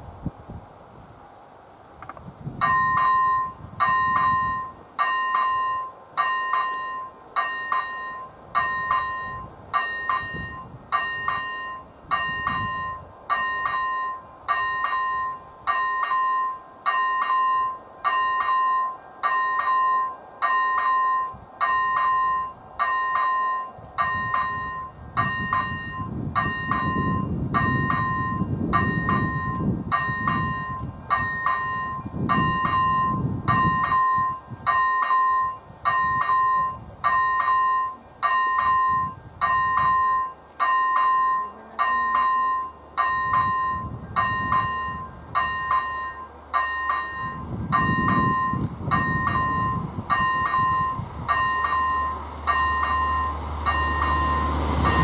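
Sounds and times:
electronic level crossing bell: 2.6 - 55.0
low rumble: 42.1 - 55.0.

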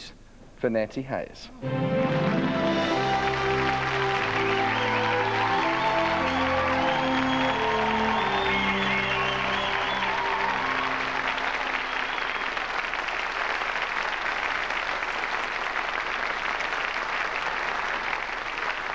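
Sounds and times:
music: 1.6 - 12.8
audience applauding: 1.6 - 18.9.

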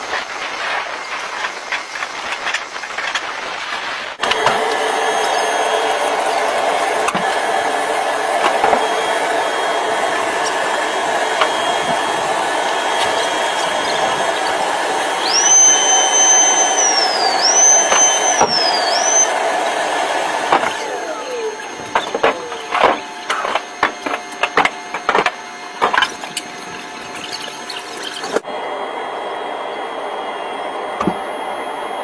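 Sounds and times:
mechanical whirring: 0.0 - 28.5
high whistling tone: 4.2 - 7.2, 8.6 - 28.4.

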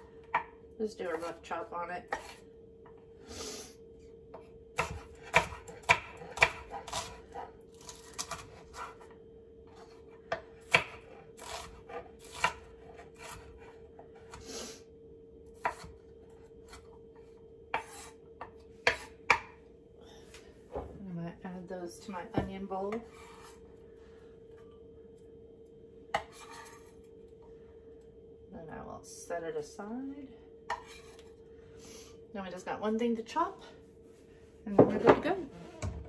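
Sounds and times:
faint steady hum: 0.0 - 36.0
knife chopping on wooden board: 4.3 - 9.0, 10.3 - 13.7, 15.6 - 16.0, 17.7 - 19.6, 26.1 - 26.7
knife scraping across board: 17.7 - 18.2, 23.0 - 23.6, 26.1 - 27.0, 30.7 - 31.3.

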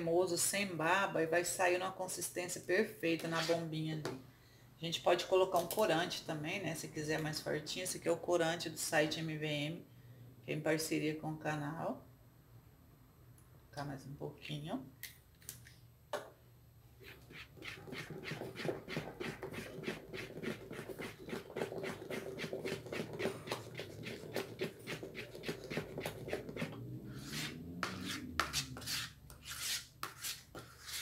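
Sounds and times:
spoon stirring thick paste: 17.0 - 31.0.

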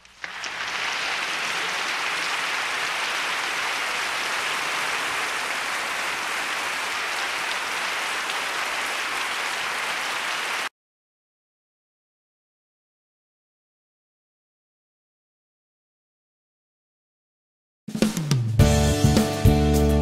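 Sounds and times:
crowd applause: 0.0 - 10.7.

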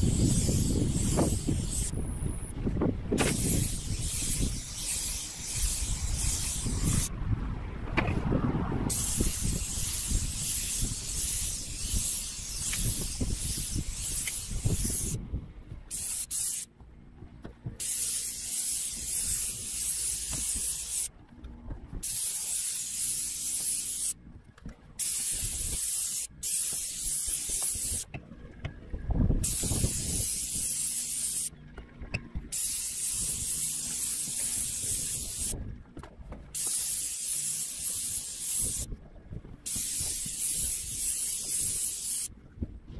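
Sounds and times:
paint sprayer hissing: 0.0 - 2.0, 3.2 - 7.1, 8.9 - 15.2, 15.9 - 16.7, 17.8 - 21.1, 22.0 - 24.2, 25.0 - 28.1, 29.4 - 31.5, 32.5 - 35.6, 36.6 - 38.9, 39.6 - 42.3.

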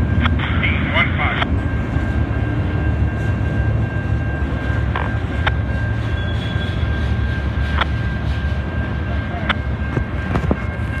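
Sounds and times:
freight train rumbling: 0.0 - 11.0
high wheel squeal: 3.1 - 11.0.

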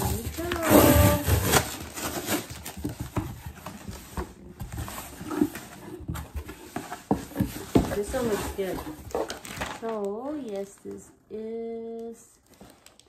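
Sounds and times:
cardboard box being opened: 0.0 - 10.0
rustling cardboard and paper: 0.0 - 13.0.

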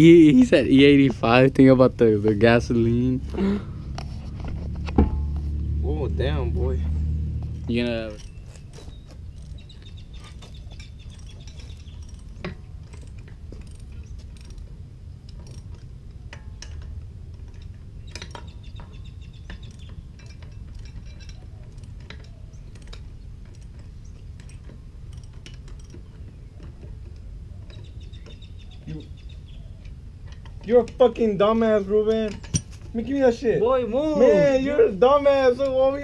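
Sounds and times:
metal lug nuts clinking: 0.0 - 5.6, 6.8 - 28.9, 29.6 - 36.0
wrench ratchet clicking: 9.3 - 18.6, 19.5 - 26.1.

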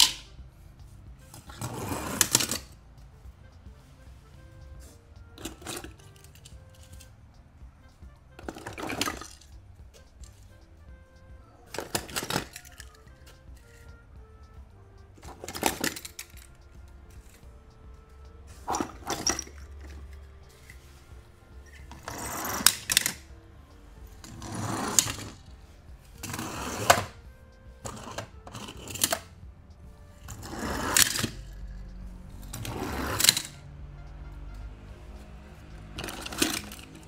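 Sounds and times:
quiet background music: 0.0 - 37.0
toy cars rolling on plastic: 1.3 - 2.8, 5.4 - 7.1, 8.4 - 9.5, 11.7 - 13.9, 15.2 - 16.5, 18.5 - 20.8, 21.7 - 23.2, 24.2 - 25.4, 26.2 - 27.2, 27.8 - 29.3, 30.2 - 31.6, 32.4 - 33.6, 36.0 - 37.0.

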